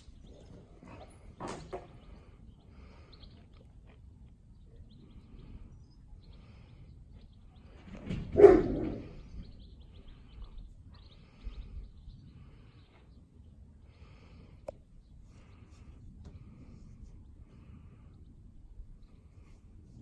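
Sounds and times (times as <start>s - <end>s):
puppy barking: 8.3s - 9.1s.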